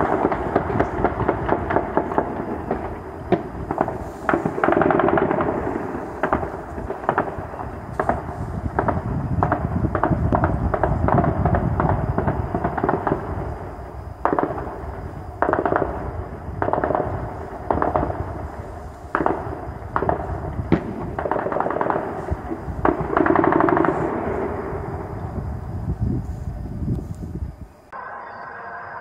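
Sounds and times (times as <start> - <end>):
automatic gunfire: 3.7 - 7.4, 15.4 - 16.0, 16.6 - 18.2, 19.2 - 22.2, 22.8 - 24.7.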